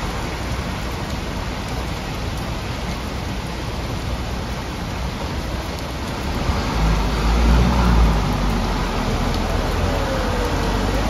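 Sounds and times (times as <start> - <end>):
heavy rain hissing: 0.0 - 11.0
truck rumbling through floodwater: 0.0 - 11.0.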